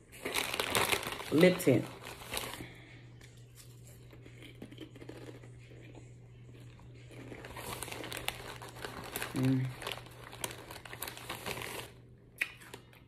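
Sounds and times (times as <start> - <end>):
plastic snack bag crinkling: 0.0 - 13.0
steady low hum: 1.5 - 11.1
person crunching snack: 3.6 - 6.0, 6.6 - 12.8.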